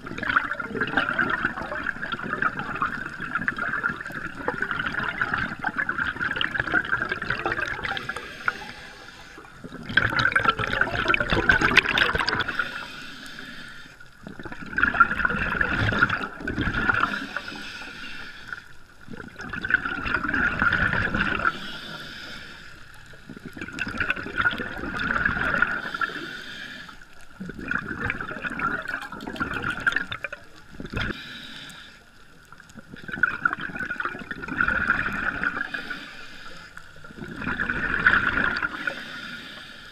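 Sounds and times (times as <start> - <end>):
bubbles gurgling: 0.0 - 12.9, 14.1 - 17.7, 18.5 - 22.0, 23.0 - 26.3, 27.1 - 31.2, 32.4 - 36.0, 36.8 - 39.0
regulator breathing underwater: 5.0 - 9.8, 10.7 - 14.4, 15.6 - 19.0, 21.0 - 29.0, 30.8 - 32.7, 34.9 - 39.9.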